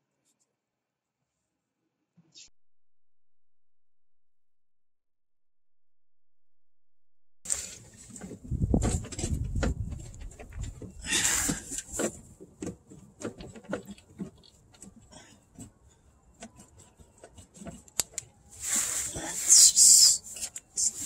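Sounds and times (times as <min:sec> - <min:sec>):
loud scraping and rustling: 0:07.5 - 0:21.0.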